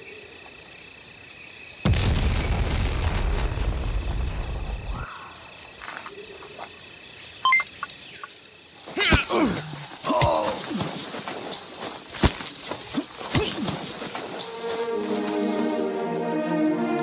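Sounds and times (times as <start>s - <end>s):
insects chirping: 0.0s - 17.0s
explosion rumble: 1.9s - 5.0s.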